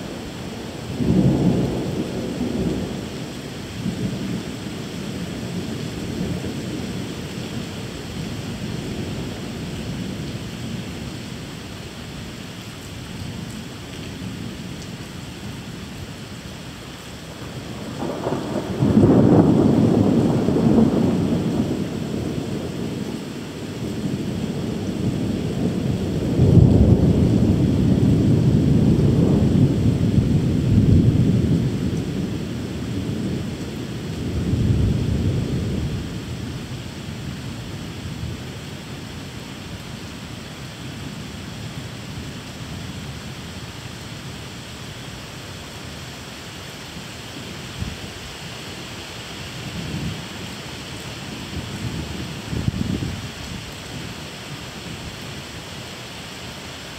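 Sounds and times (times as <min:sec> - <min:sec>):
steady rain: 0:00.0 - 0:56.9
rolling thunder: 0:00.8 - 0:03.2, 0:17.3 - 0:38.5, 0:51.4 - 0:54.1.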